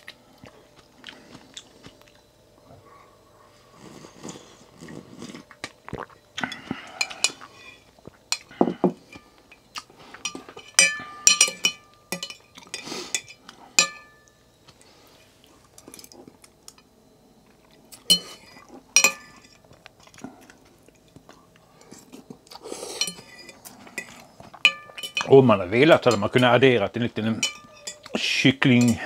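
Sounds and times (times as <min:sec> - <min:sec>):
person slurping: 0:03.8 - 0:07.6
cutlery clinking on porcelain bowl: 0:10.2 - 0:14.3, 0:18.0 - 0:19.6, 0:23.0 - 0:25.4, 0:27.3 - 0:28.2.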